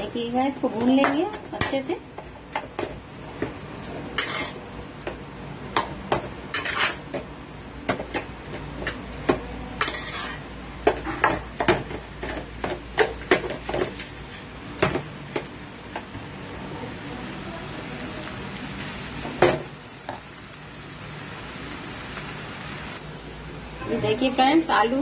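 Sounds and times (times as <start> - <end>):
spatula scraping pan bottom: 4.1 - 4.6, 6.5 - 7.0, 9.8 - 10.5.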